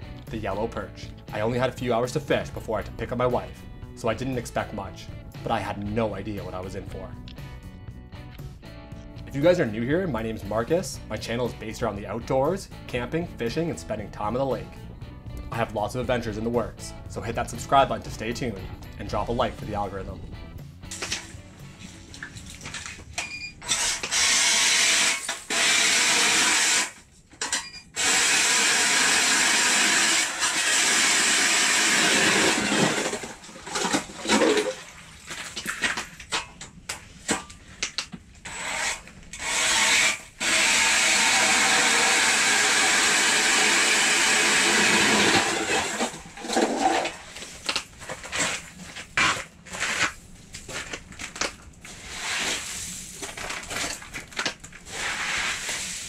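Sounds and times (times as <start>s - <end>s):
power ice auger boring: 23.6s - 27.0s, 28.0s - 34.6s, 38.5s - 47.2s
ice chips knocking and scraping: 32.6s - 36.3s.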